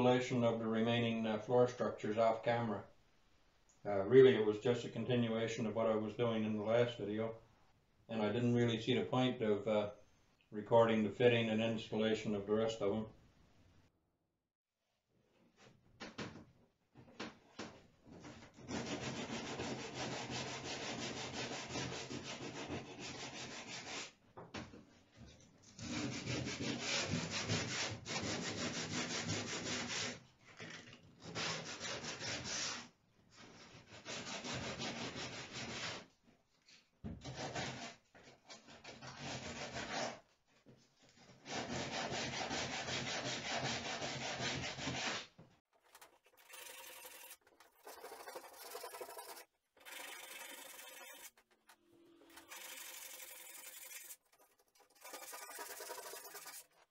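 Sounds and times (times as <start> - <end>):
sandpaper rubbing wood: 18.7 - 24.2, 25.8 - 30.2, 31.2 - 32.9, 33.9 - 36.0, 41.4 - 45.3, 46.3 - 51.4, 52.4 - 56.9.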